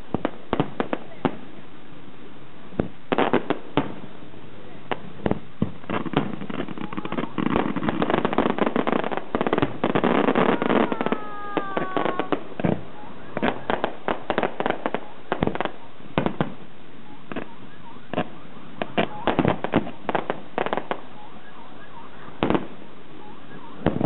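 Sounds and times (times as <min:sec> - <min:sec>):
fireworks crackling and bangs: 0:00.0 - 0:24.0.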